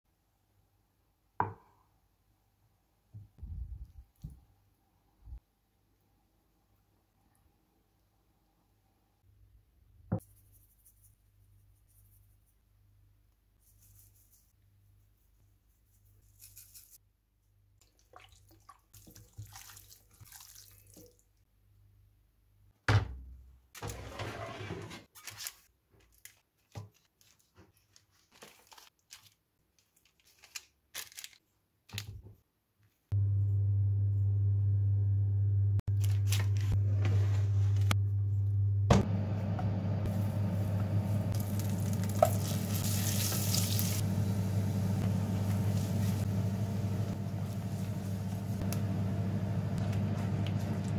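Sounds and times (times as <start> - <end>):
butter sizzling in frying pan: 41.4 - 50.8
steady low hum: 44.0 - 50.9.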